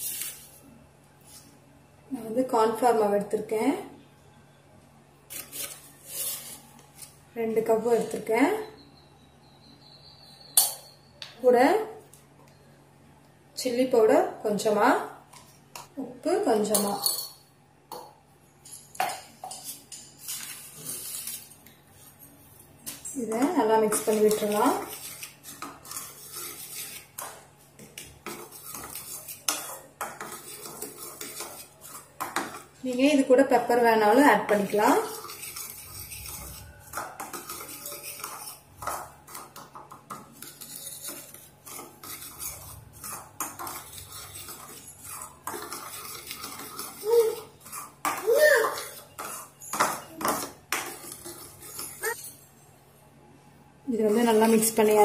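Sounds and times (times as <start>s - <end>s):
kitchen containers knocking and clinking: 15.8s - 20.2s
spoon scraping and clinking bowl: 18.6s - 22.1s, 23.8s - 27.4s, 28.0s - 32.7s, 34.5s - 52.6s
spoon stirring dry powder: 23.2s - 52.2s.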